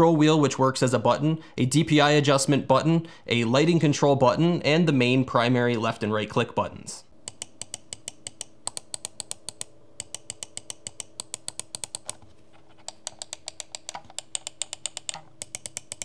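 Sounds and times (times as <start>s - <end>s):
mouse buttons clicking rapidly: 7.2s - 16.0s.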